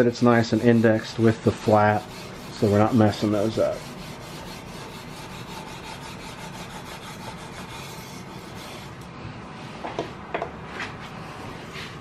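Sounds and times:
sandpaper rubbing on steel: 0.0s - 9.0s.

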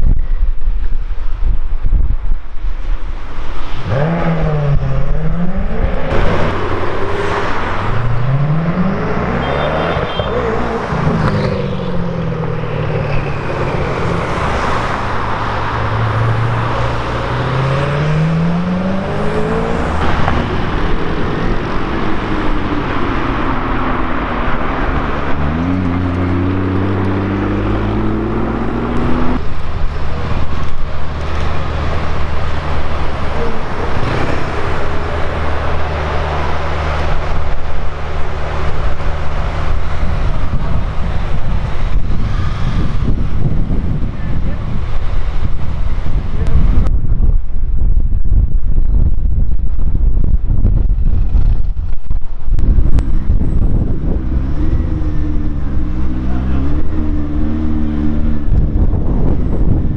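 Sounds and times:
sports car engine revving: 3.8s - 43.1s
car engine running low: 3.9s - 59.9s.

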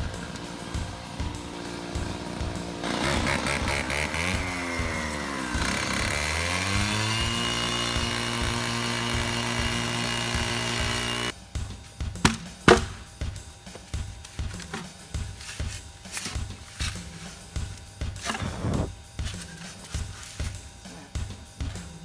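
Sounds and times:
cut-off saw cutting concrete: 1.4s - 11.3s.

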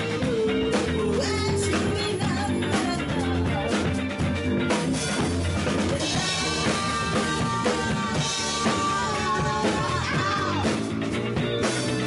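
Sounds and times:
rock band playing: 0.0s - 12.0s.

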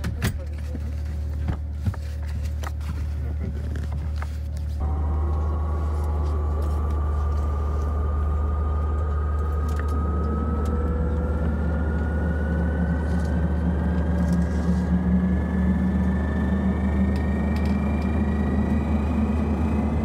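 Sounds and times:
turbine whine: 1.8s - 20.0s
propeller drone: 4.8s - 20.0s.

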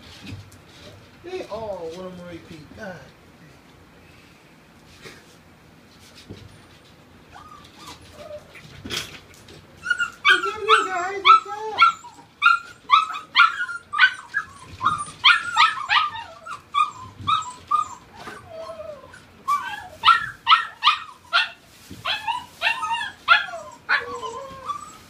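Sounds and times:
puppies yipping and whining: 7.2s - 9.0s, 9.8s - 25.0s.

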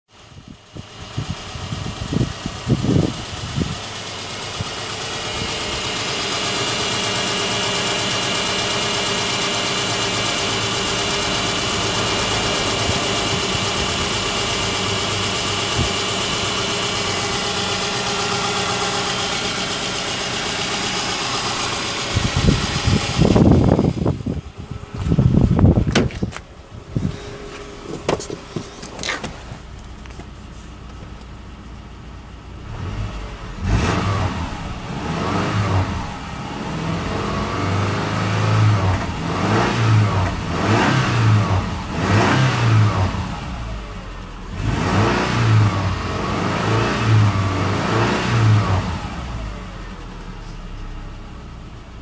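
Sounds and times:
car engine idling: 0.1s - 52.0s
low thumps: 22.1s - 31.2s
handling knocks: 25.0s - 26.5s, 27.6s - 30.3s.

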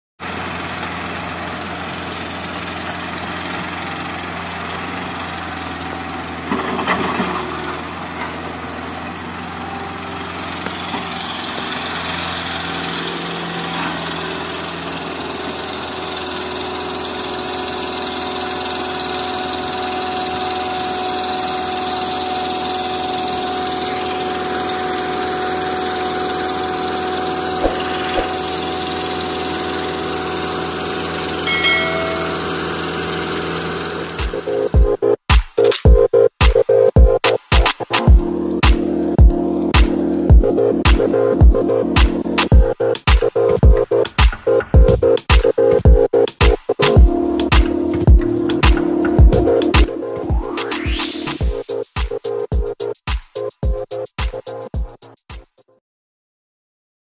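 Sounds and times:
excavator diesel engine running: 0.2s - 51.8s
steady high whine: 31.4s - 35.1s.

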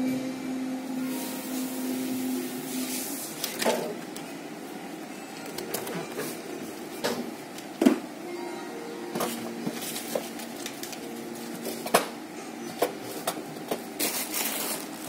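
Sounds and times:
steady machine hum: 0.0s - 15.0s
parcel packaging rustling: 9.2s - 11.9s, 12.9s - 15.0s.

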